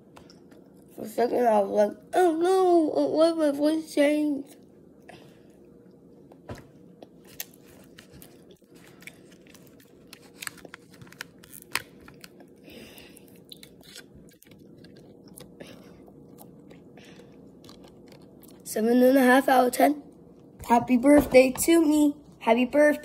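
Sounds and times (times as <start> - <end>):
child chewing chocolate: 5.0 - 18.8.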